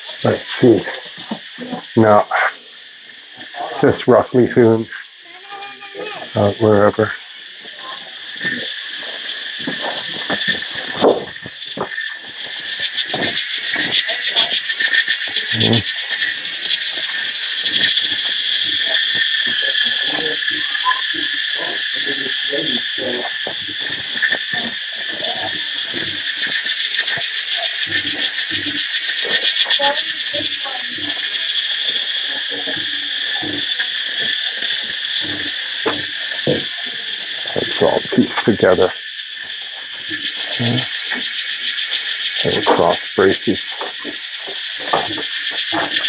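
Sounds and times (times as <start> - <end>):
insects buzzing: 0.0 - 46.0.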